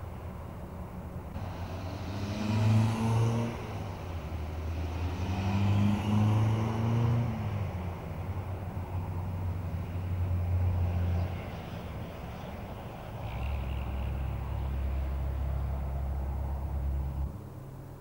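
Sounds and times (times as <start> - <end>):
steady low traffic hum: 0.0 - 18.0
vehicle passing: 1.4 - 17.3.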